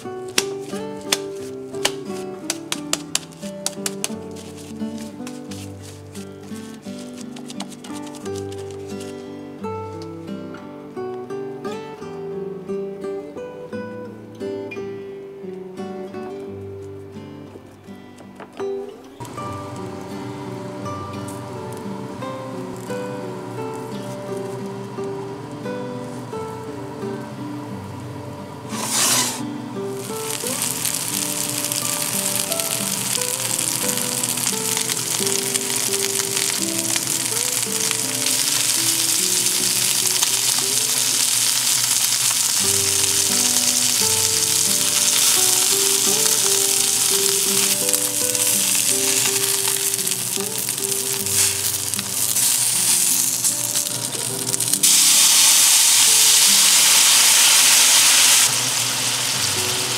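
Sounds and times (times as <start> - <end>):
liquid boiling off in hot pan: 0.0 - 6.8, 28.6 - 59.9
food sizzling in oil: 0.0 - 7.2, 19.2 - 24.9, 28.7 - 59.9
background music: 18.4 - 58.3.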